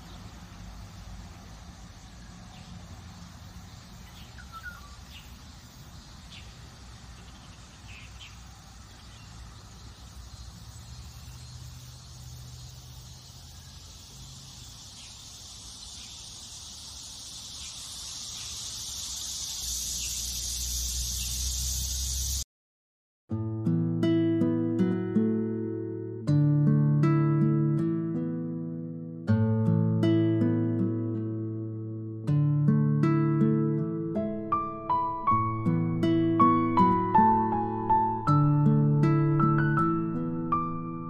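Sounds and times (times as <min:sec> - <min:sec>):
bird chirps: 0:00.0 - 0:22.4
steady high hiss: 0:00.0 - 0:22.4.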